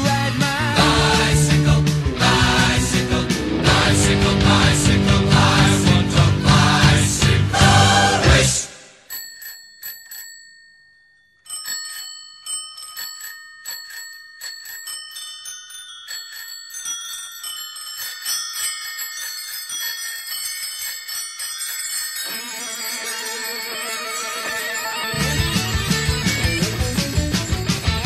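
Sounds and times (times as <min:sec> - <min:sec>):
electric guitar: 0:00.7 - 0:08.5, 0:25.2 - 0:28.0
bicycle bells ringing: 0:09.0 - 0:28.0.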